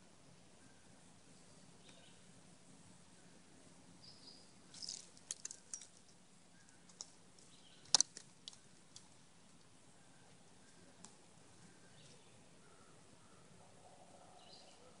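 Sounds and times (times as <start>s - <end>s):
squirrel cracking seeds: 4.7s - 6.1s, 6.7s - 9.2s.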